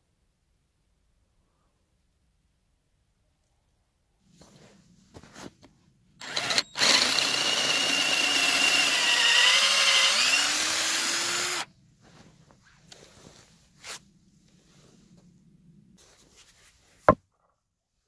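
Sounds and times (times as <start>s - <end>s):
cordless drill boring into wood: 6.2s - 11.7s.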